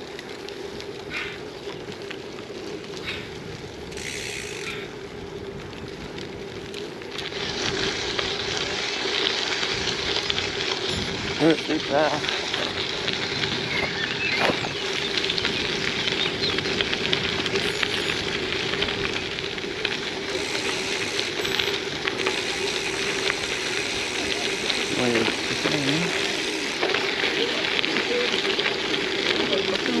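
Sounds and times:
bike tyres rolling on damp surface: 0.0 - 30.0
faint voices: 20.1 - 30.0.

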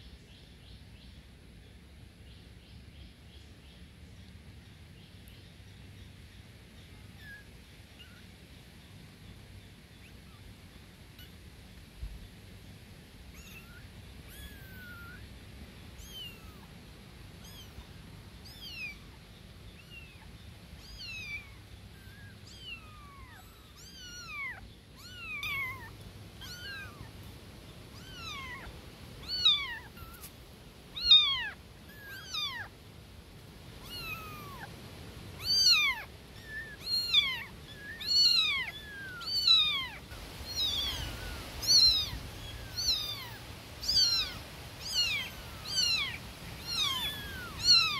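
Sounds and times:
kittens mewing: 20.8 - 27.1, 28.0 - 30.3, 33.8 - 34.7, 35.4 - 47.9.

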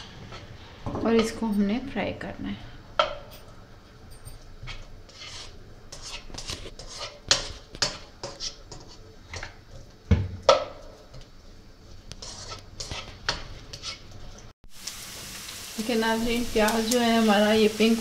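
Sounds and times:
spatula scraping and knocking on wok: 4.6 - 11.3, 11.9 - 14.4.

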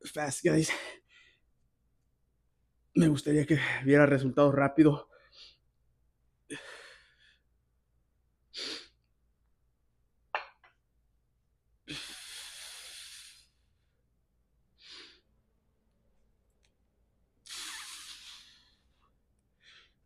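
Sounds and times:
man breathing forcefully: 11.9 - 13.7.

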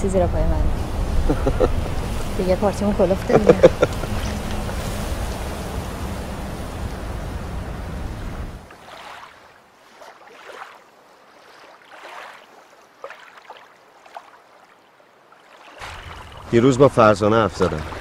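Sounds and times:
low outdoor rumble: 0.0 - 8.7
small waves lapping on shore: 0.0 - 18.0.

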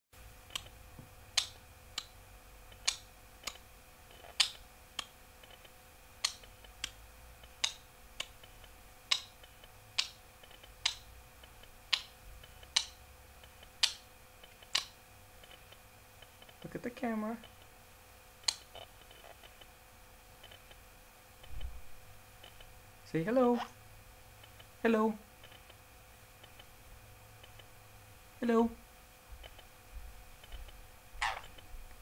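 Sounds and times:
faint hum: 0.2 - 32.0
sharp clicks in pairs: 1.3 - 8.5, 9.1 - 16.6, 18.4 - 19.6.

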